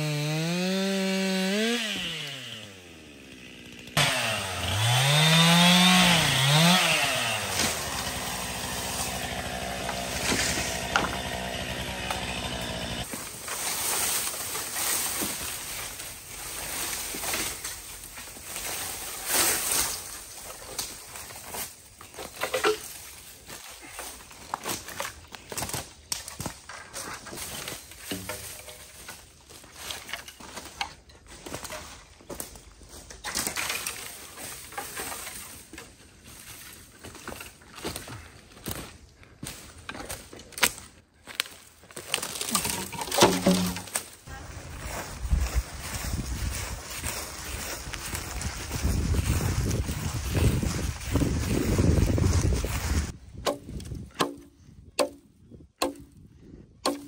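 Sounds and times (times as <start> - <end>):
brush rustling and crackling: 13.0 - 53.2
wind rumble on microphone: 45.2 - 46.9, 47.9 - 54.8
bamboo knocking: 53.4 - 55.2, 55.8 - 56.2.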